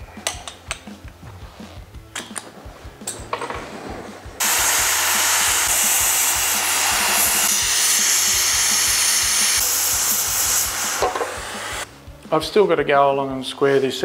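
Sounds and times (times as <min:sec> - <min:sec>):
air-arc gouger hissing: 0:04.4 - 0:11.9.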